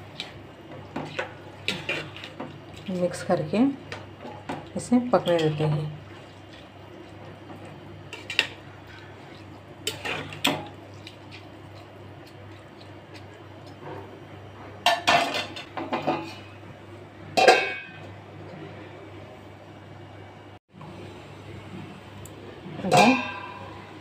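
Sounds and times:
spatula scraping cooking pot: 0:00.1 - 0:02.4, 0:08.1 - 0:13.3.

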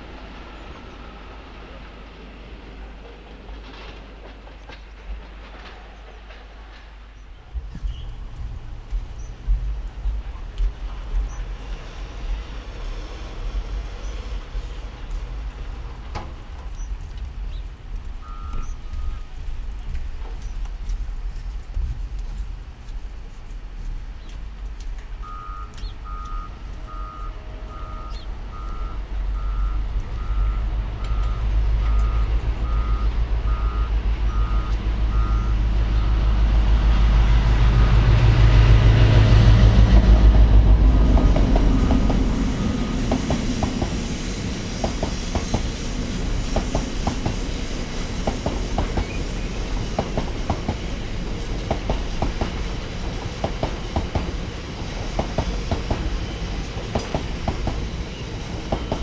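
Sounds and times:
train engine rumble: 0:00.0 - 0:59.0
wheels clacking over rail joints: 0:01.6 - 0:12.4, 0:39.8 - 0:59.0
short beeps: 0:18.2 - 0:19.3, 0:25.2 - 0:36.2.

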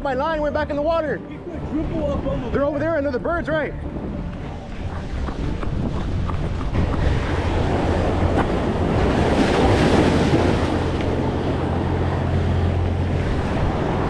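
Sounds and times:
wind buffeting microphone: 0:01.8 - 0:14.0
waves breaking against boulders: 0:04.2 - 0:14.0.

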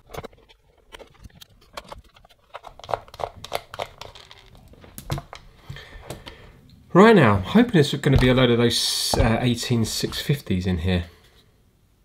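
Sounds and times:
screwdriver turning screws in plastic: 0:01.0 - 0:04.6.

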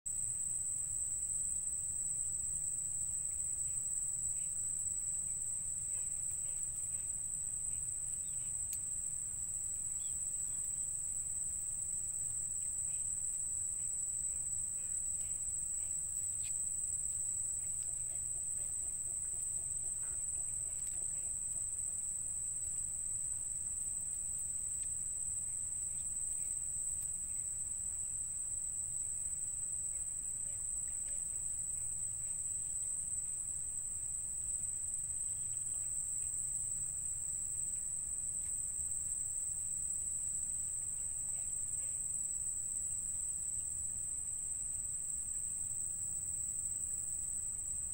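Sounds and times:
insects trilling: 0:00.2 - 0:47.9
high-pitched insect drone: 0:09.5 - 0:11.2.

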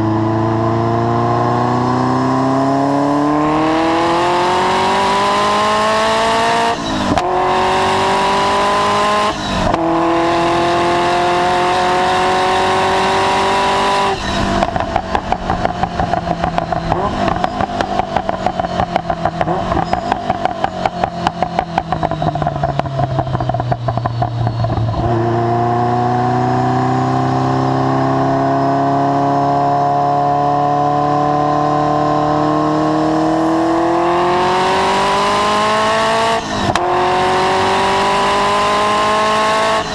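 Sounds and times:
sports car engine at full throttle: 0:00.0 - 0:39.9
exhaust crackling and popping: 0:14.1 - 0:25.2.

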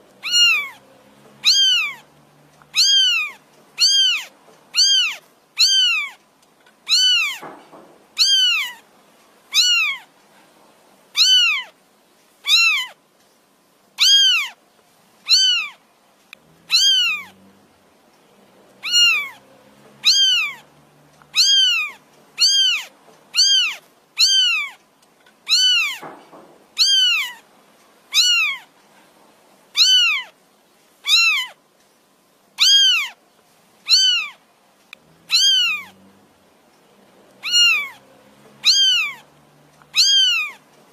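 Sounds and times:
kitten meowing: 0:00.2 - 0:00.8, 0:01.4 - 0:06.2, 0:06.9 - 0:07.6, 0:08.2 - 0:08.8, 0:09.5 - 0:10.1, 0:11.2 - 0:11.8, 0:12.4 - 0:13.0, 0:14.0 - 0:14.6, 0:15.2 - 0:15.8, 0:16.7 - 0:17.4, 0:18.8 - 0:19.4, 0:20.0 - 0:24.8, 0:25.5 - 0:26.2, 0:26.8 - 0:27.4, 0:28.1 - 0:28.7, 0:29.8 - 0:30.3, 0:31.0 - 0:31.6, 0:32.6 - 0:33.2, 0:33.8 - 0:34.4, 0:35.3 - 0:36.0, 0:37.4 - 0:38.0, 0:38.6 - 0:40.6.

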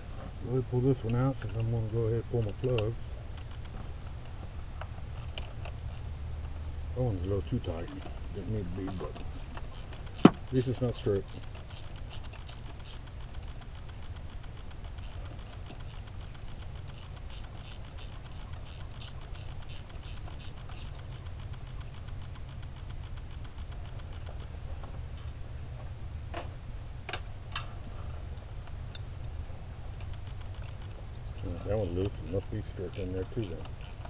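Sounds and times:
ratchet wrench clicking: 0:07.3 - 0:24.5, 0:29.9 - 0:34.0.

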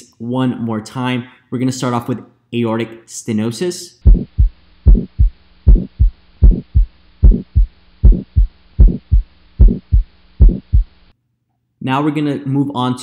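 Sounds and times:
faint steady hum: 0:00.0 - 0:12.8
heartbeat: 0:04.0 - 0:11.0.

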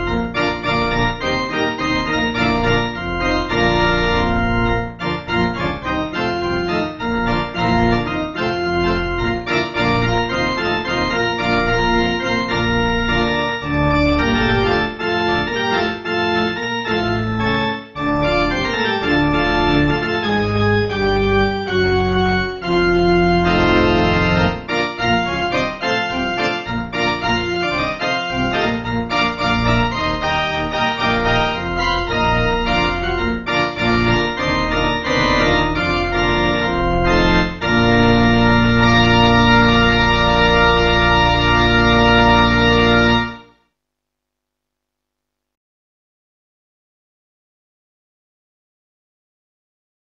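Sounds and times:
church organ playing chords: 0:00.0 - 0:43.6.

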